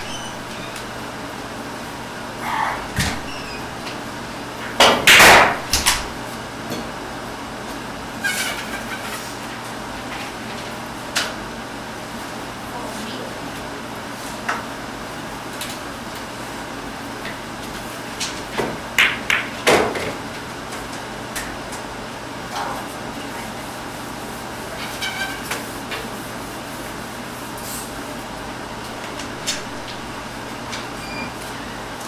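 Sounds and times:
pool balls clicking and knocking: 0:00.0 - 0:02.2, 0:02.9 - 0:06.9, 0:18.2 - 0:21.1, 0:28.6 - 0:32.0
steady low hum: 0:00.0 - 0:07.3, 0:26.4 - 0:32.0.

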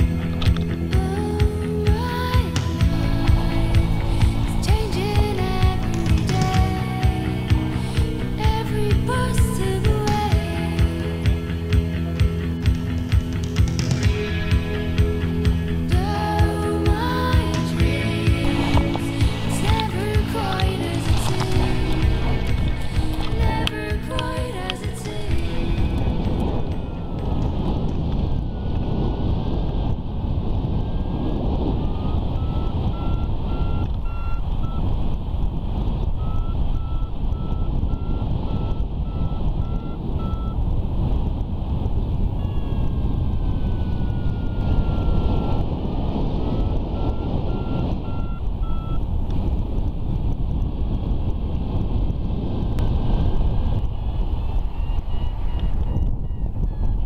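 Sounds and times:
wind rushing on microphone: 0:00.0 - 0:57.0
variometer beeping: 0:11.3 - 0:29.6, 0:30.8 - 0:50.8.

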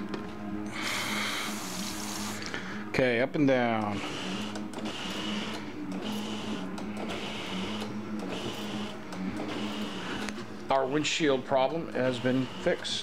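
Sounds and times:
electric motor whirring: 0:00.6 - 0:02.6, 0:03.8 - 0:10.5, 0:11.9 - 0:13.0.

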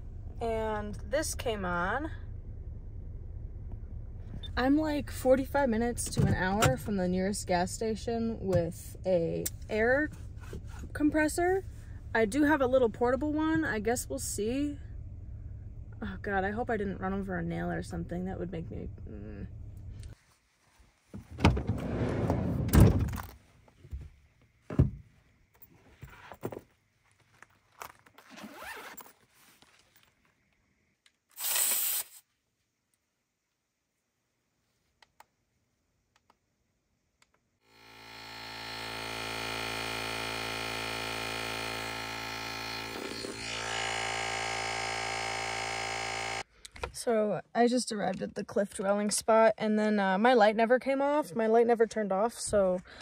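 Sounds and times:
sliding door rolling open: 0:21.5 - 0:23.2
tyre inflator humming: 0:37.7 - 0:46.4.

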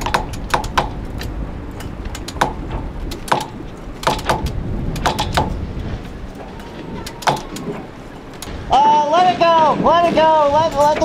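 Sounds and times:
winch clicking metallically: 0:00.0 - 0:08.8.

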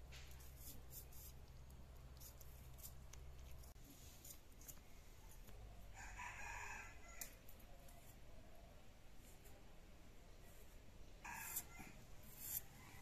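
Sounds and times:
rooster crowing: 0:05.9 - 0:07.4.

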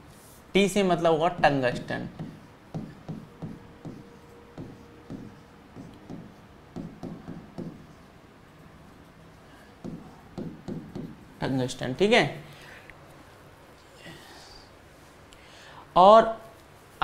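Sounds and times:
faint steady hum: 0:00.0 - 0:17.0
pen tapping on whiteboard screen: 0:01.4 - 0:08.0, 0:09.8 - 0:11.2.

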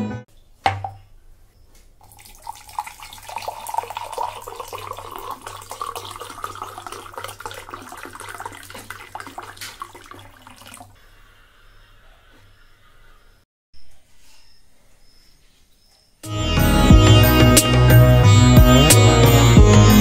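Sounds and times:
water pouring into glass: 0:02.0 - 0:11.0.

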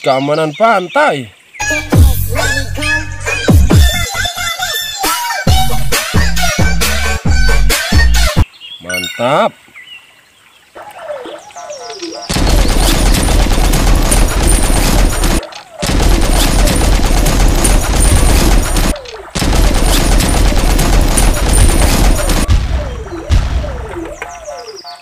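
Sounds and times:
machine-gun fire bursts: 0:12.3 - 0:24.1.

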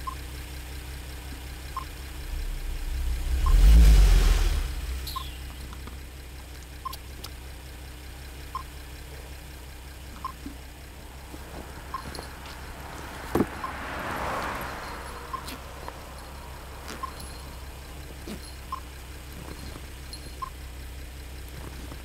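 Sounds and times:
faint short beep: 0:04.8 - 0:05.7, 0:11.8 - 0:12.8, 0:14.8 - 0:17.6.

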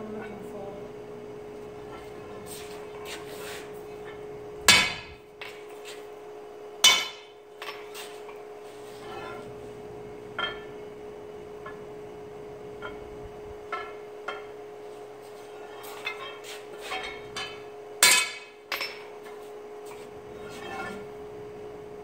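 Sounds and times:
forge hum: 0:00.0 - 0:22.0
loud metallic clangs: 0:04.7 - 0:05.2.

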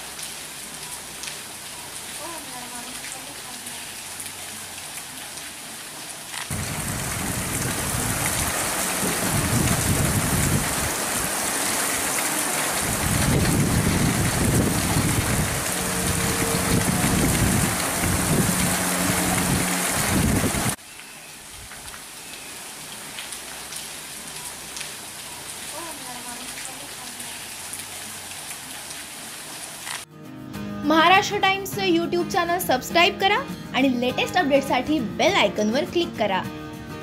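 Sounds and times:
heavy rain pouring: 0:00.0 - 0:30.1
deep rumble: 0:12.9 - 0:20.8.

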